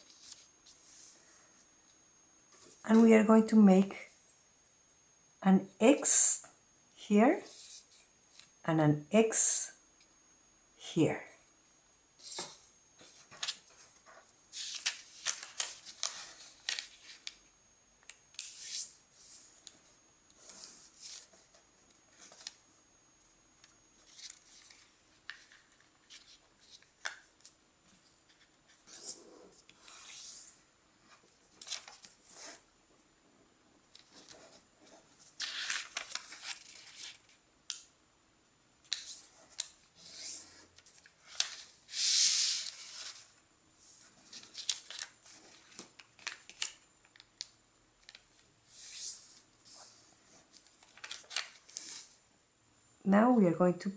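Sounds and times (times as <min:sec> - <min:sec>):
paper rustling and crinkling: 0:12.2 - 0:17.4, 0:24.0 - 0:27.6, 0:31.2 - 0:32.6, 0:33.9 - 0:37.4, 0:38.9 - 0:43.4, 0:44.0 - 0:46.8, 0:48.0 - 0:52.2.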